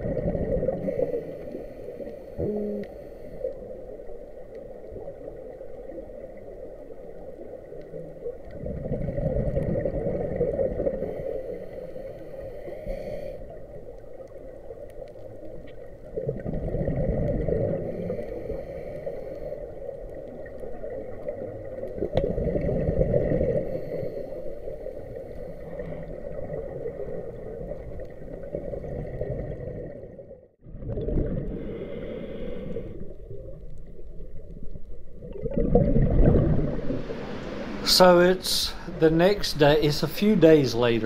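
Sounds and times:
exhaled bubbles rushing: 0:00.0 - 0:01.2, 0:08.2 - 0:11.1, 0:16.1 - 0:18.0, 0:20.7 - 0:23.7, 0:25.7 - 0:31.8, 0:32.8 - 0:40.9
muffled hum: 0:35.6 - 0:40.4
hissing of inhaled air: 0:36.4 - 0:40.1.

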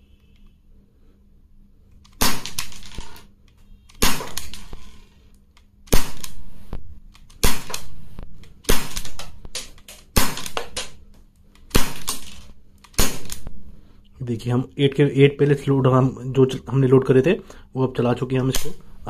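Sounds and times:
pellet pistol shots: 0:02.1 - 0:03.1, 0:03.9 - 0:04.8, 0:05.9 - 0:06.4, 0:07.4 - 0:11.0, 0:11.7 - 0:13.5.

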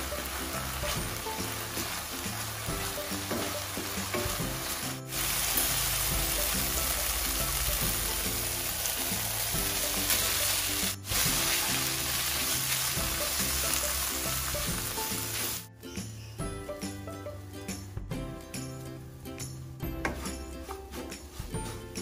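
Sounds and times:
paste sizzling in a wok: 0:00.0 - 0:15.7
wooden spatula scraping wok: 0:00.0 - 0:15.7, 0:20.0 - 0:22.0
light background music: 0:00.0 - 0:22.0.

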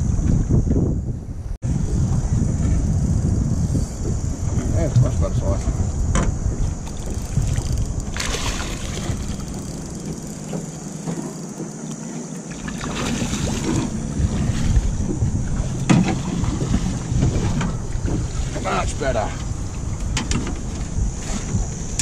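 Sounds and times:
wind rumbling on microphone: 0:00.0 - 0:22.0
water splashing by boat hull: 0:06.1 - 0:22.0.

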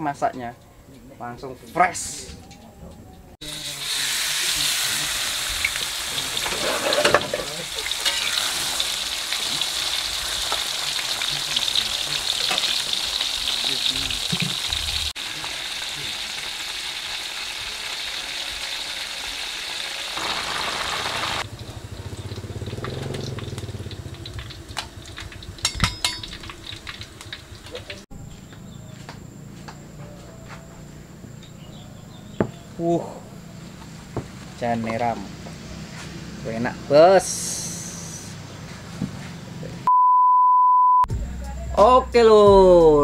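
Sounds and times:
mushrooms sizzling in hot oil: 0:03.4 - 0:28.0.

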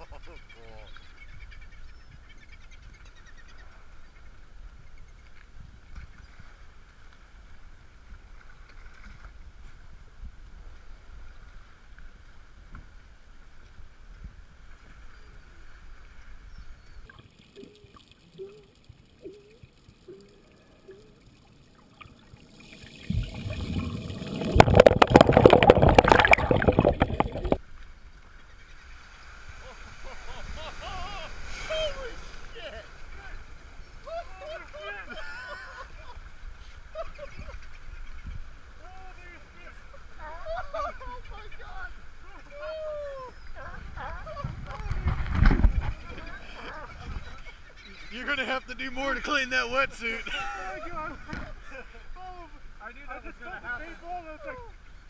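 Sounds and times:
water sloshing and lapping: 0:16.0 - 0:27.6
dense crackle of sharp ticks: 0:17.0 - 0:27.6.

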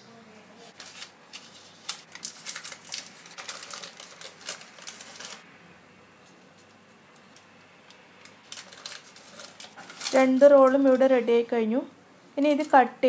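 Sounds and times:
parchment paper crackling: 0:00.7 - 0:05.4, 0:06.5 - 0:11.6.

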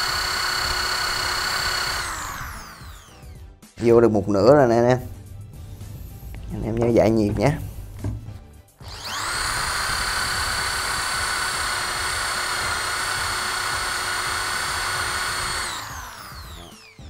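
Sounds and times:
electric drill motor whine: 0:00.0 - 0:03.4, 0:08.8 - 0:17.0.

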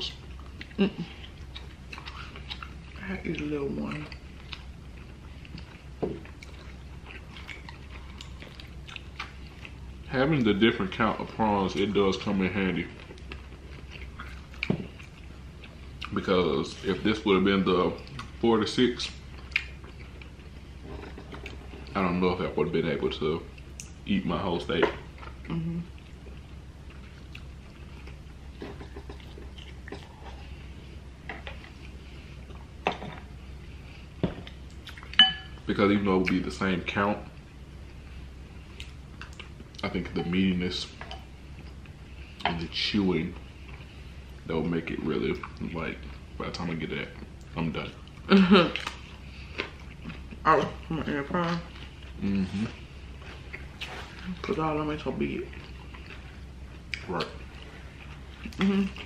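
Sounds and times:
low steady hum: 0:00.0 - 0:59.0
chewing with wet mouth clicks: 0:00.1 - 0:09.9, 0:12.9 - 0:16.2, 0:18.0 - 0:18.4, 0:19.1 - 0:22.0, 0:23.5 - 0:24.0, 0:25.1 - 0:30.5, 0:34.4 - 0:35.3, 0:38.7 - 0:40.4, 0:51.4 - 0:54.6, 0:55.4 - 0:59.0.

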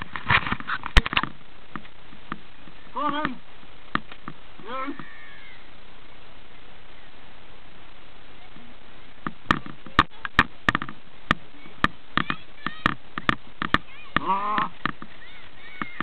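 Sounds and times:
child shouting: 0:04.7 - 0:05.7, 0:11.6 - 0:13.0, 0:13.7 - 0:16.0
sharp irregular clicks and knocks: 0:09.2 - 0:16.0.

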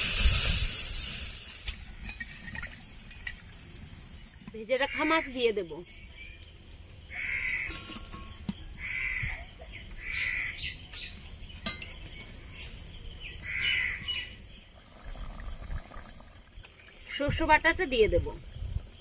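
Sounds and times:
crow cawing: 0:07.1 - 0:07.7, 0:08.8 - 0:09.4, 0:10.0 - 0:10.6.

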